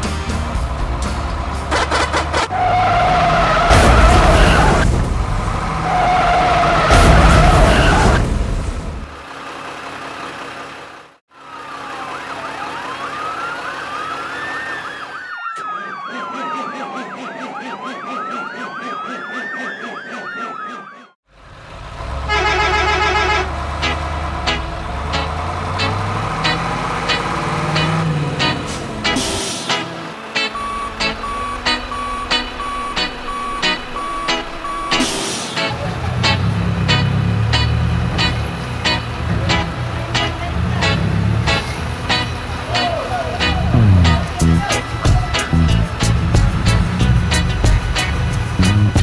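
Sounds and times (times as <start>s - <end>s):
music: 0.0s - 1.9s, 30.8s - 40.5s, 41.5s - 49.0s
vehicle sound effects: 0.0s - 49.0s
siren wailing: 2.5s - 4.8s, 11.4s - 21.2s, 29.8s - 35.7s.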